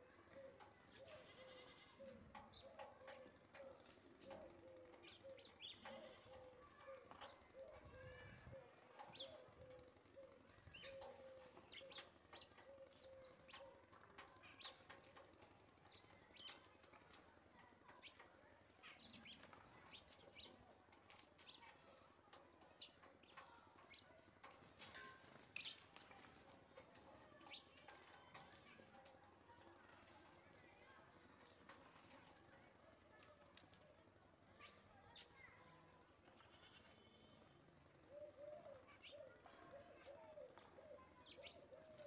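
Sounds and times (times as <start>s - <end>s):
sparrows chirping: 0.0s - 33.2s, 34.5s - 42.0s.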